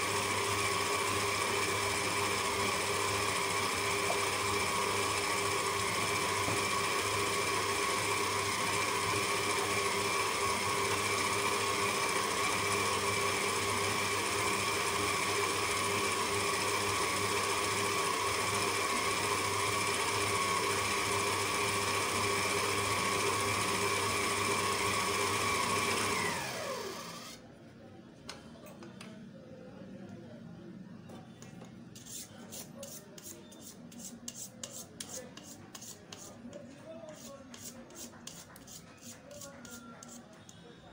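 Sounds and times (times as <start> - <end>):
mixer motor spinning down: 0.0 - 27.4
stand mixer running: 0.0 - 27.4.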